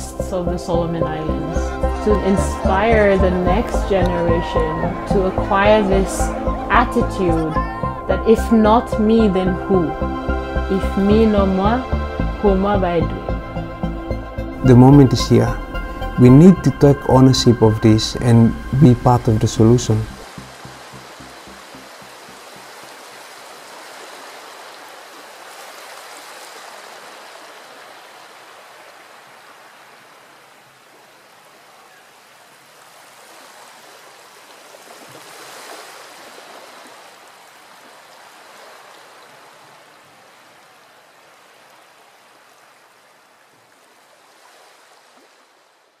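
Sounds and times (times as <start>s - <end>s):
sea water washing on shore: 20.2s - 46.0s.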